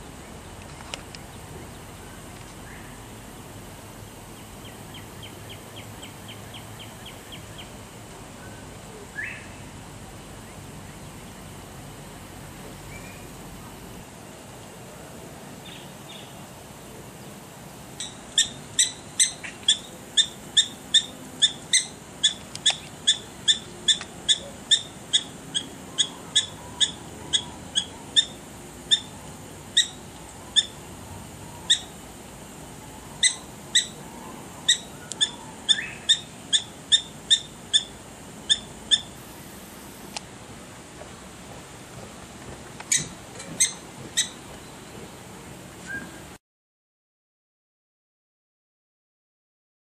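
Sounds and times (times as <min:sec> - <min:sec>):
prairie dog yipping: 0:18.0 - 0:29.1, 0:34.6 - 0:37.9, 0:38.5 - 0:39.2.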